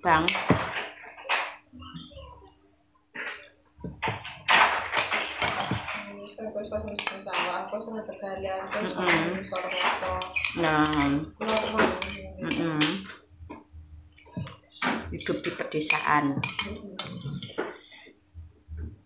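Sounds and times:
metal spoon clinking on bowl: 9.5 - 12.6, 15.2 - 17.6
low voice: 10.9 - 13.1, 16.4 - 17.8.

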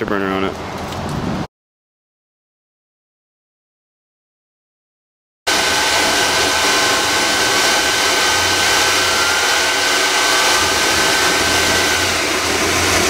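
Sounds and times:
high steady whine: 5.5 - 13.0
jet engine roaring rush: 5.5 - 13.0.

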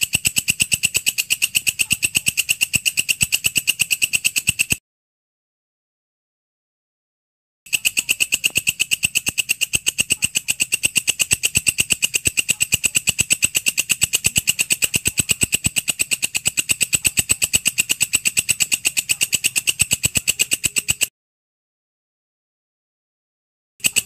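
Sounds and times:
insect chirping rapidly: 0.0 - 4.8, 7.7 - 21.1.

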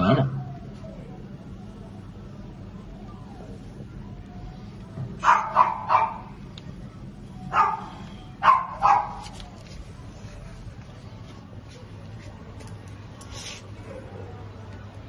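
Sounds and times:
dog barking: 5.2 - 6.4, 7.5 - 9.4.

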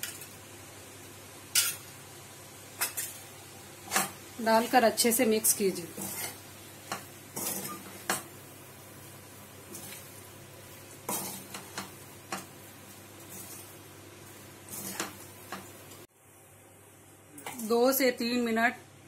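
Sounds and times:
faint sizzle: 0.0 - 19.0
steel spoon scraping a pan: 5.9 - 8.2, 14.6 - 15.6.

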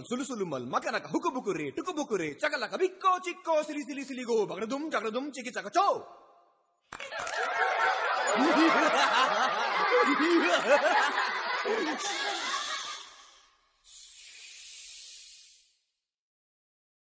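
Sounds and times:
group laughing: 7.0 - 13.4.

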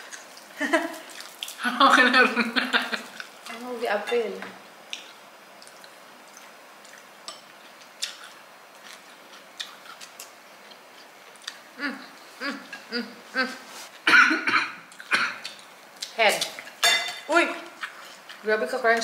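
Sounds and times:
chewing crunches: 0.0 - 1.6, 3.1 - 3.6, 4.9 - 11.7, 17.6 - 18.5
person humming: 11.8 - 13.8.

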